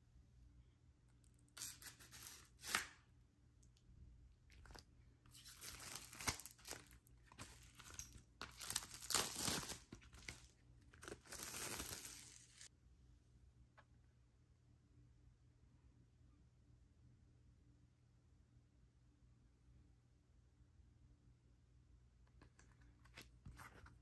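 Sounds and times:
packaging tearing and crinkling: 0:01.6 - 0:02.9, 0:04.6 - 0:12.7.

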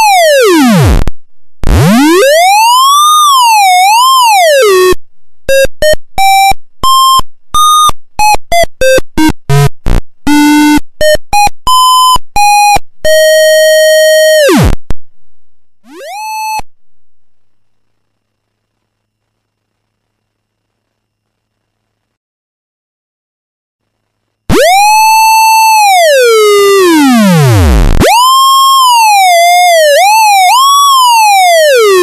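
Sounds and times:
buzzy square-wave synth tone: 0:00.0 - 0:15.0, 0:15.8 - 0:16.7, 0:24.5 - 0:32.0.

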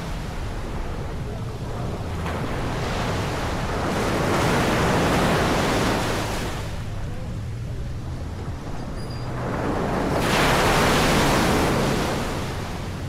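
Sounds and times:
wave breaking on beach: 0:02.0 - 0:07.0, 0:09.3 - 0:13.0.

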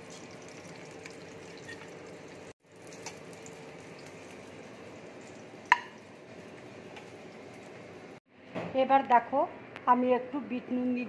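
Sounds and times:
oil sizzling in a pan: 0:00.0 - 0:08.2.

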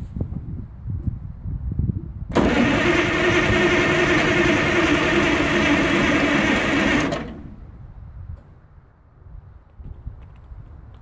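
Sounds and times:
diesel engine starter cranking: 0:02.3 - 0:07.7.

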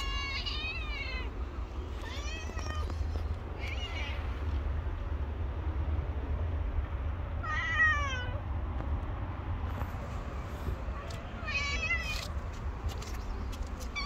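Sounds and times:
cat meowing: 0:00.0 - 0:04.6, 0:07.4 - 0:08.4, 0:11.4 - 0:12.3
steady low rumble: 0:00.0 - 0:14.0.

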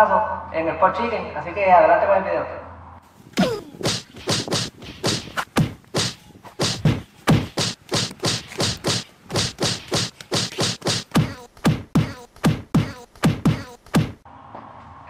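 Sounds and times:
punchy percussive hits: 0:03.4 - 0:14.2.

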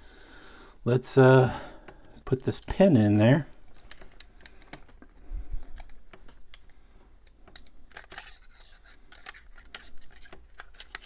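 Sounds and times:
small metal knife parts clicking: 0:07.6 - 0:11.0.

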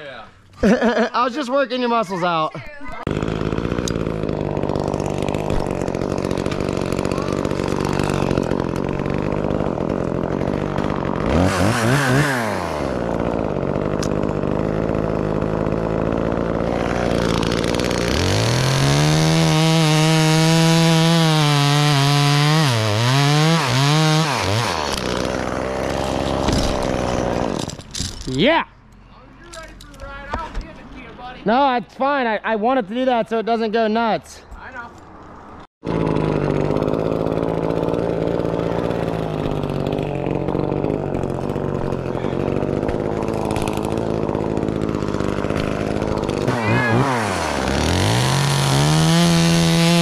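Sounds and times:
chainsaw idling and revving: 0:02.2 - 0:28.4, 0:35.8 - 0:50.0.

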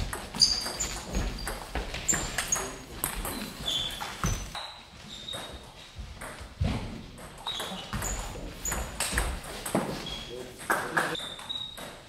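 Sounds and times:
table tennis ball bouncing: 0:00.0 - 0:04.6, 0:07.2 - 0:10.0, 0:10.6 - 0:12.0
shoes squeaking on floor: 0:00.0 - 0:12.0.

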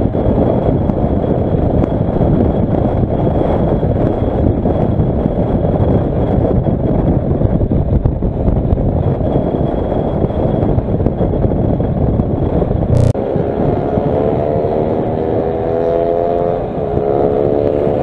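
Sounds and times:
wind rushing over microphone: 0:00.0 - 0:18.0
motorcycle engine running: 0:12.8 - 0:18.0.

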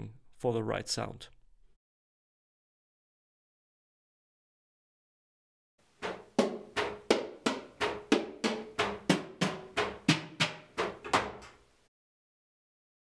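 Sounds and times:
electronic drum strikes: 0:06.0 - 0:11.5.

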